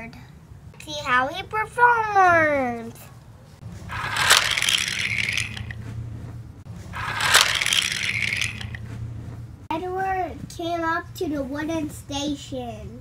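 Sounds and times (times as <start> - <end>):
toy train wheels rattling: 3.9 - 5.8, 7.0 - 8.8
sharp clack: 7.1 - 8.8.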